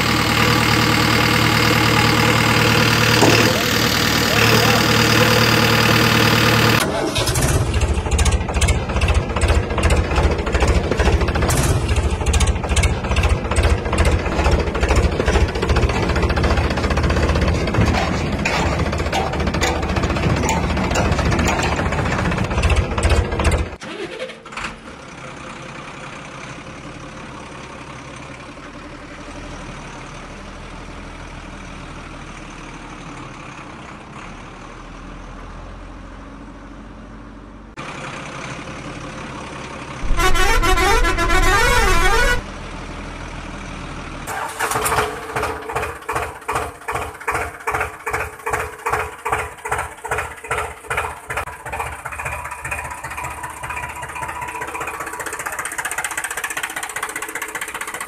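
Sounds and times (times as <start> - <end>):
tractor engine chugging: 0.0 - 24.1, 38.0 - 42.4, 44.3 - 58.0
heavy truck engine running: 0.0 - 58.0
loud warbling horn: 40.0 - 42.4.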